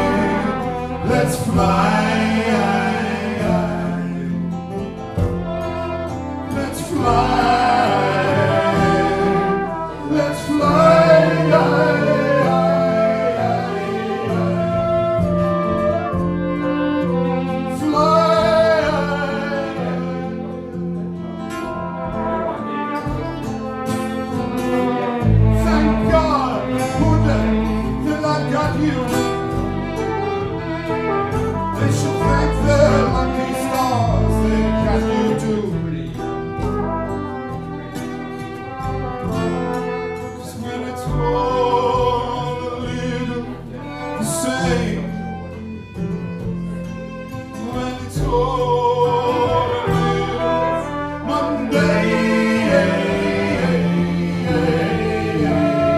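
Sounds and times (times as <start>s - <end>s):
man singing: 0.0s - 4.7s, 6.4s - 16.1s, 17.5s - 20.7s, 25.0s - 29.6s, 31.6s - 37.0s, 39.6s - 45.6s, 47.4s - 55.9s
acoustic guitar strumming: 0.0s - 55.9s
double bass: 0.0s - 55.9s
flugelhorn: 0.0s - 55.9s
violin: 0.0s - 55.9s.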